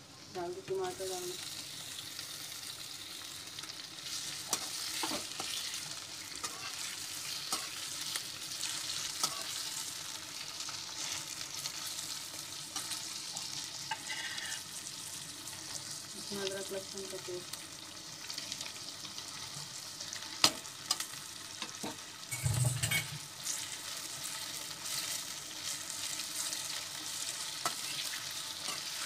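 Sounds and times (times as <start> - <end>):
vegetables sizzling in hot oil: 0.0 - 29.0
metal spatula scraping pan: 6.4 - 7.9, 13.9 - 14.6.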